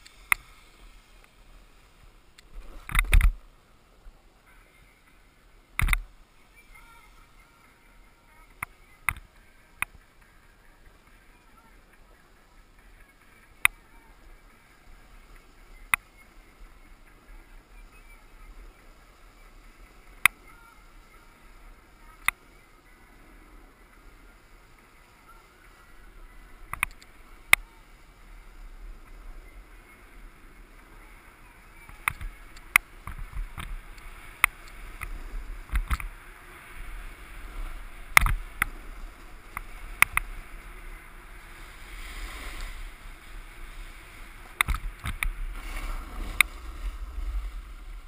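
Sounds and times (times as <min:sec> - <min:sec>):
snowboard sliding on snow: 0:32.3 - 0:48.0
snowboard scrapes: 0:41.3 - 0:48.0.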